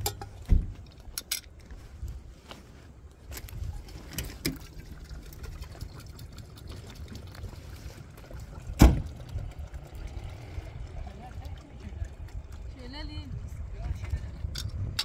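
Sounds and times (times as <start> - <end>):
water pouring and trickling: 0.0 - 2.3, 3.1 - 15.0
low steady rumble: 0.0 - 15.0
loud thump: 8.8 - 9.1.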